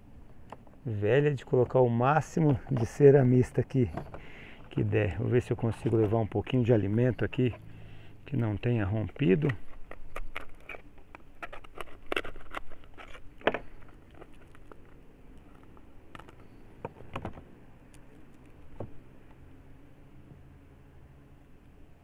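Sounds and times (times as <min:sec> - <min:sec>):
wax crumbling crackles: 0:08.3 - 0:17.1.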